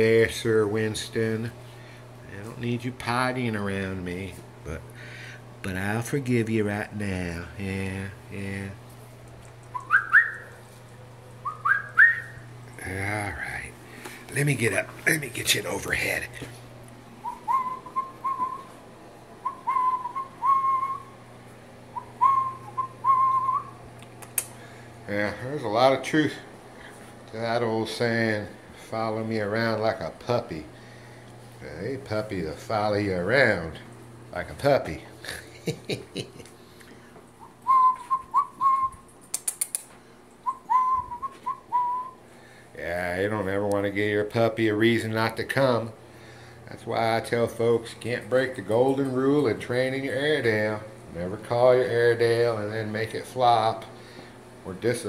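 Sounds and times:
sharp clicks: 9.2s - 10.0s, 24.0s - 24.6s, 39.2s - 39.9s
person whistling: 9.7s - 10.5s, 11.4s - 12.4s, 17.2s - 18.7s, 19.4s - 21.1s, 22.0s - 23.7s, 37.6s - 39.0s, 40.4s - 42.2s
person whistling short notes: 11.4s - 12.4s, 37.6s - 39.0s, 40.5s - 42.2s.

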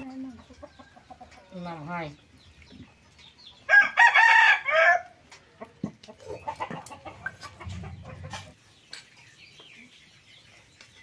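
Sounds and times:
rooster crowing: 3.7s - 5.2s.

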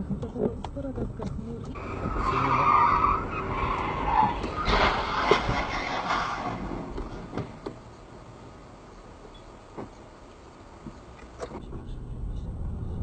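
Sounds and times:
car tyres skidding squeal: 1.8s - 6.9s
burst of noise: 3.4s - 7.6s
thump: 4.3s - 7.8s.

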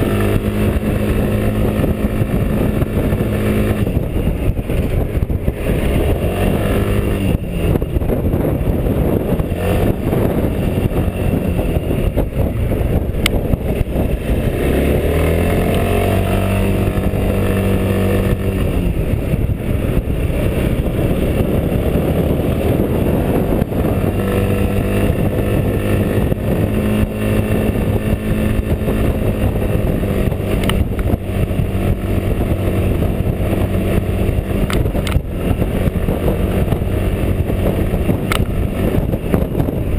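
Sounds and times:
scooter engine running uphill: 0.0s - 39.9s.

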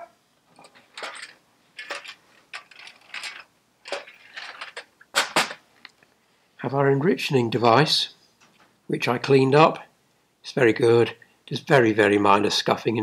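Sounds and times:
metal parts clinking and rattling: 0.5s - 5.6s.

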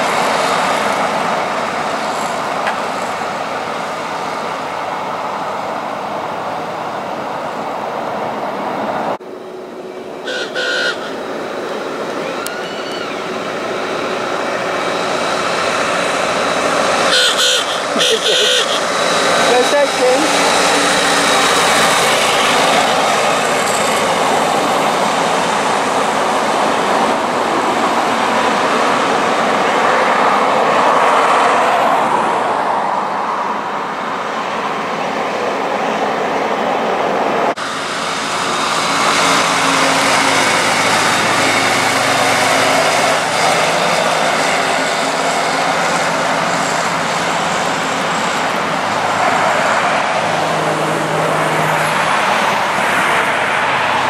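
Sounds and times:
road traffic and tyre noise: 0.0s - 54.0s
tractor diesel engine running: 9.2s - 27.4s, 37.6s - 49.2s.

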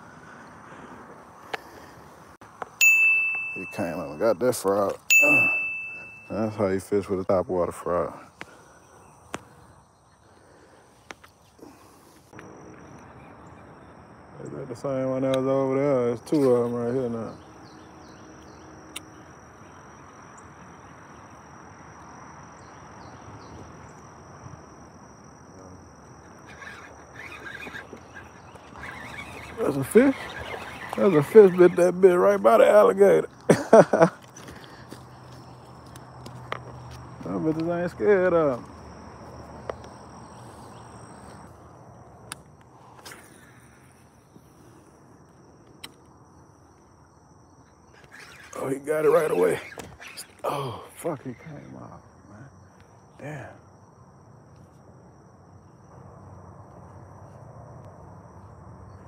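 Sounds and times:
high insect drone: 0.0s - 59.0s.

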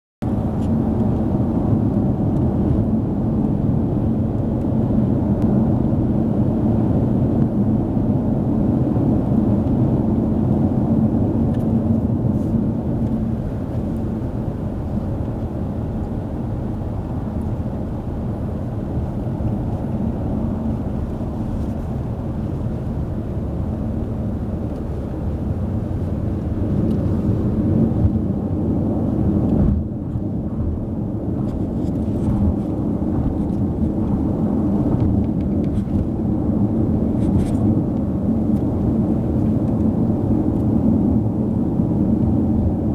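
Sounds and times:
car road and engine rumble: 0.2s - 42.9s.

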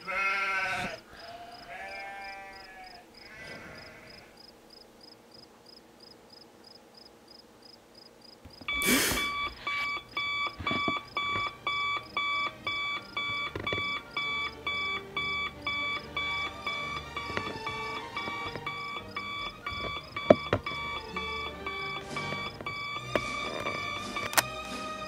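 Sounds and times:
faint high ticking: 8.4s - 24.4s
digital alarm clock beeping: 8.6s - 25.0s.

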